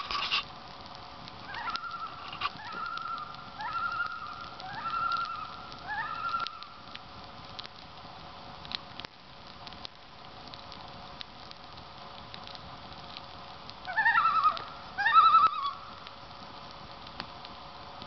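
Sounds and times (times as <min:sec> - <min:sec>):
campfire crackling: 0:00.0 - 0:18.0
loon tremolo calls: 0:01.5 - 0:06.8, 0:13.9 - 0:15.9.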